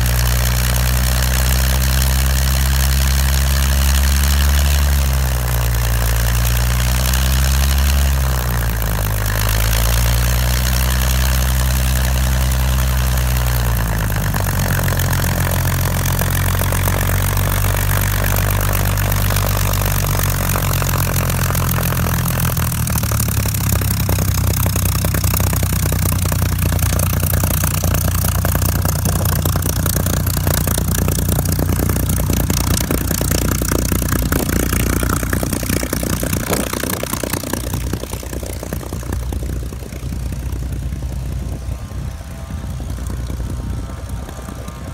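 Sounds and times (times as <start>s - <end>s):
propeller aircraft engine running: 0.0s - 44.9s.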